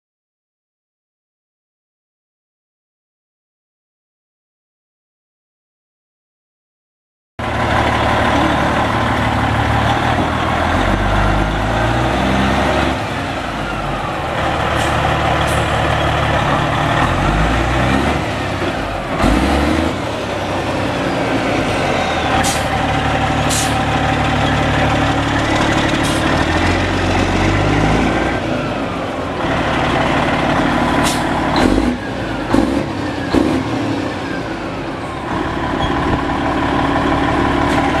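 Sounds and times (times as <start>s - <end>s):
diesel truck engine revving: 7.4s - 38.0s.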